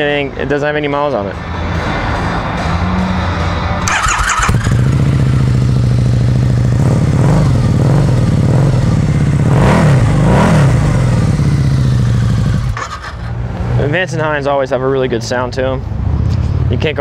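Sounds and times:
motorcycle engine idling and revving: 0:01.7 - 0:14.4.

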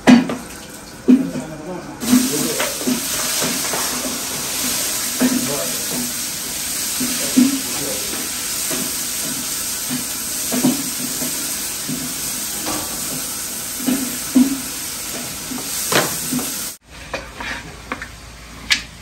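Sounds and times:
food sizzling in hot oil: 0:02.0 - 0:16.8.

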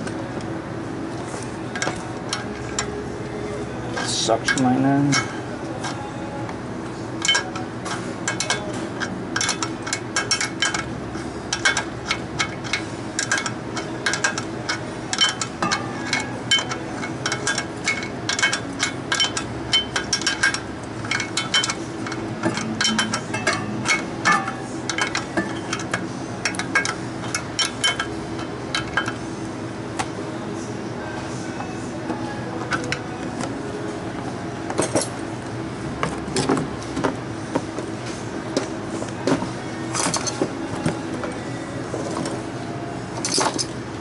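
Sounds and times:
compressor hum: 0:00.0 - 0:44.0
hand tools clicking on metal: 0:07.2 - 0:10.9, 0:11.5 - 0:29.2.

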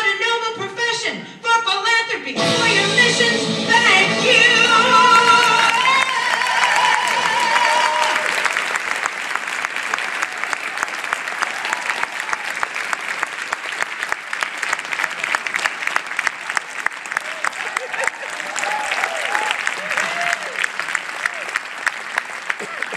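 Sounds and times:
audience applauding: 0:05.0 - 0:22.9.

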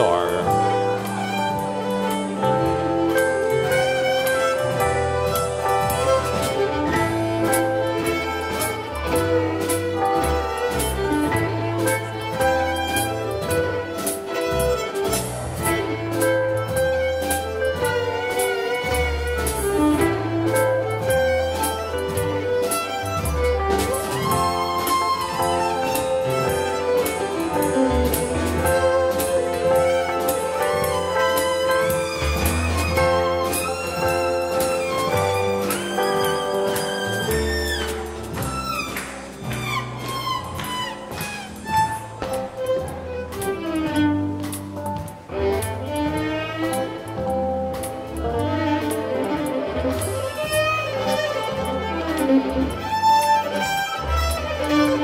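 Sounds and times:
fiddle: 0:00.0 - 0:55.0
keyboard: 0:00.0 - 0:55.0
drum beat: 0:15.1 - 0:44.0.

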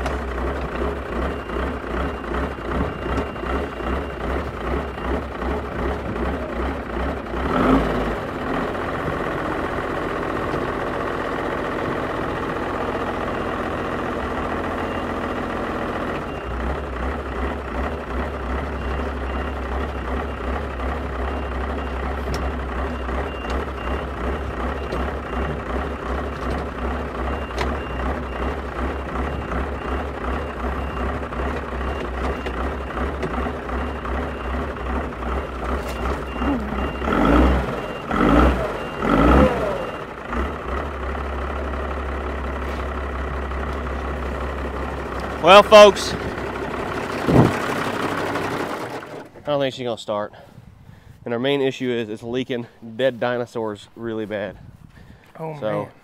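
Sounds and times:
tractor engine idling and revving: 0:00.0 - 0:56.0
faint high beeping: 0:35.4 - 0:40.1.

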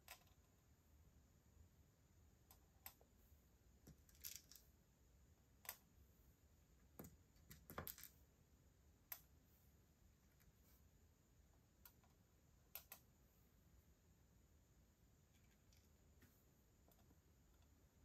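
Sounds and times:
tweezers clicking on plastic beads: 0:00.0 - 0:00.6, 0:05.5 - 0:06.0, 0:09.0 - 0:09.4, 0:11.8 - 0:13.1.

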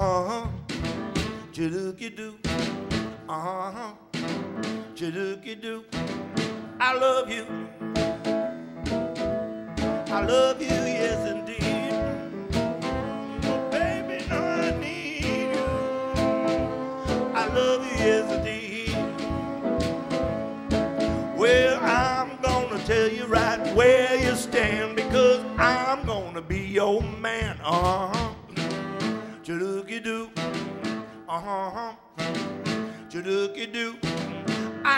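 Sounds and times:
saxophone lead with vibrato: 0:00.0 - 0:01.6, 0:02.4 - 0:31.4, 0:32.1 - 0:34.9
drum kit beat with cymbals: 0:00.0 - 0:01.8, 0:02.4 - 0:03.3, 0:04.1 - 0:05.0, 0:05.9 - 0:06.9, 0:07.8 - 0:29.4, 0:30.4 - 0:31.1, 0:32.2 - 0:33.2, 0:34.0 - 0:34.9
piano chords: 0:04.2 - 0:27.2.

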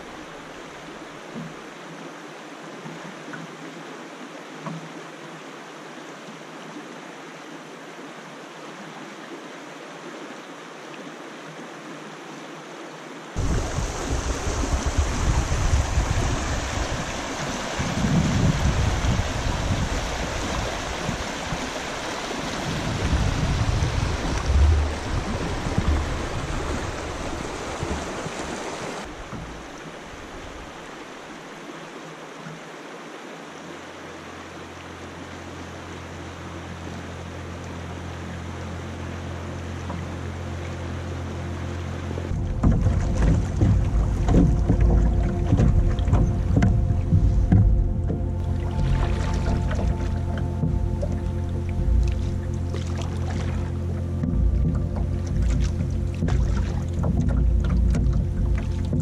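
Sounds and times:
water rushing over rocks: 0:00.0 - 0:59.0
low uneven rumble: 0:13.4 - 0:31.3, 0:35.0 - 0:59.0.

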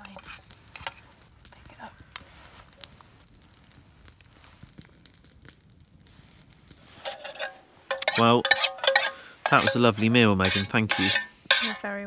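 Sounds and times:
faint rustling: 0:00.1 - 0:05.0
spoon clicking on metal pots: 0:07.1 - 0:11.8.

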